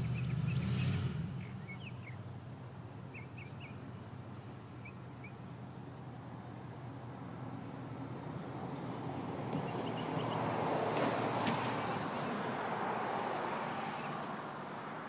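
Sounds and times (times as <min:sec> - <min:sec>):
small birds chirping: 0:00.0 - 0:08.4, 0:09.5 - 0:10.6.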